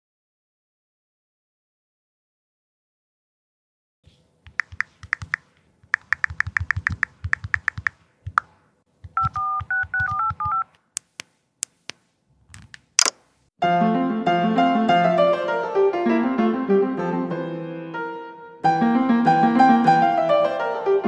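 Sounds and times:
sharp clicks: 0:04.4 - 0:13.2
rapid typing clicks: 0:04.5 - 0:10.7
telephone keypad touch tones: 0:09.0 - 0:10.8.

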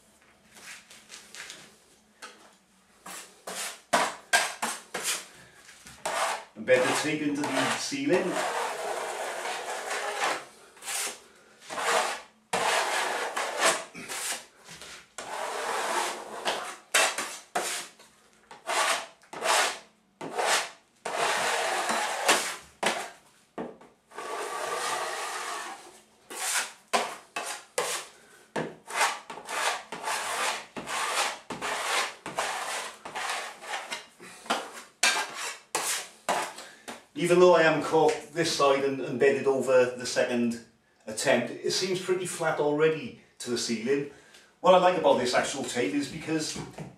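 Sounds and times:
taping knife scraping ceiling: 0:03.0 - 0:05.3, 0:06.0 - 0:23.2, 0:24.1 - 0:36.7.

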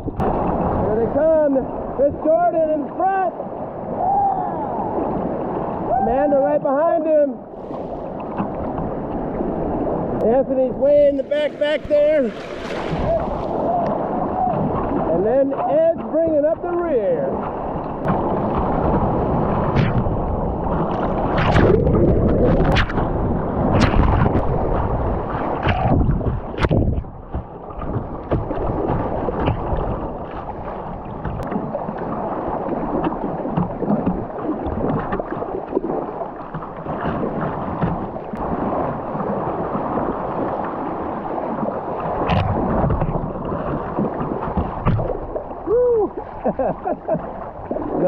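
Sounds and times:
water splashing: 0:07.5 - 0:48.0
whitewater rushing: 0:09.6 - 0:19.6.

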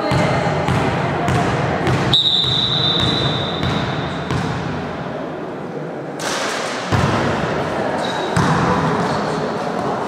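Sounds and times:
referee's whistle blast: 0:02.1 - 0:04.1.

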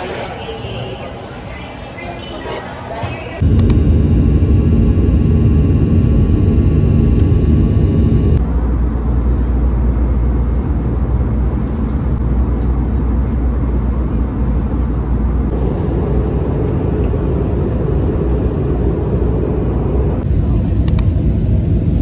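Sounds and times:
rushing air: 0:03.4 - 0:08.4
jet engines rumbling in cabin: 0:03.4 - 0:22.0.

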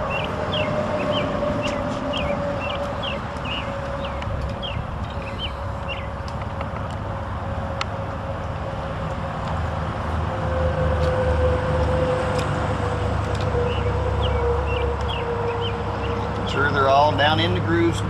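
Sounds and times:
low mechanical rumble with whine: 0:00.0 - 0:18.0
birds chirping: 0:00.1 - 0:06.2, 0:13.6 - 0:17.4.

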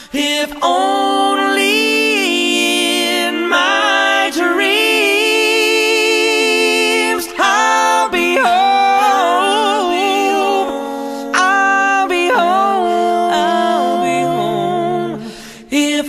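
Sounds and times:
unaccompanied voices singing in harmony: 0:00.0 - 0:16.0.

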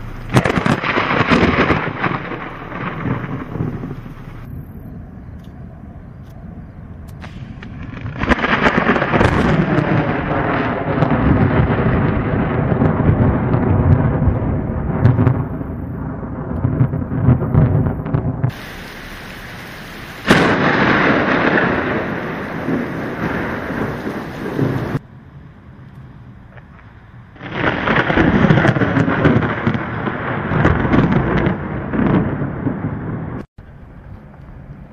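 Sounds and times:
rain: 0:00.0 - 0:04.8, 0:07.0 - 0:34.9
low rolling thunder: 0:00.0 - 0:34.7.

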